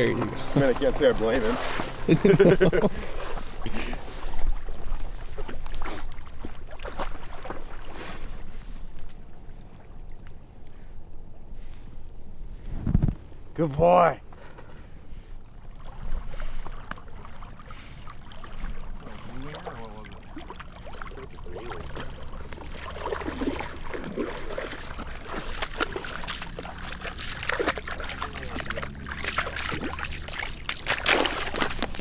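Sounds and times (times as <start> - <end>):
dog splashing through water: 0.0 - 8.4, 15.7 - 32.0.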